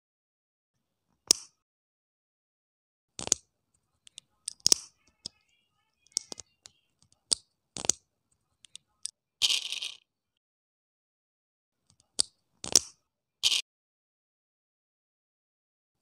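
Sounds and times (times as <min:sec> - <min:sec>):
plastic toy parts clicking: 0:03.2 - 0:08.0, 0:08.6 - 0:10.0, 0:11.9 - 0:13.6.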